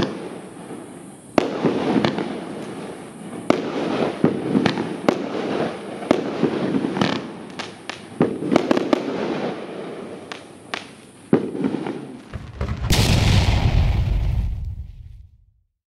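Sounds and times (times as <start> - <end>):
fireworks banging and popping: 3.5 - 9.5, 10.3 - 15.5
hissing crackle: 12.2 - 15.4
low rumble and rushing whoosh: 12.4 - 15.5.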